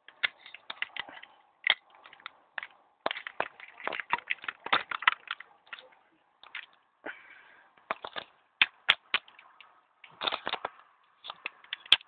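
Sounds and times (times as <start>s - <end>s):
plastic toy clicking: 10.2s - 12.0s.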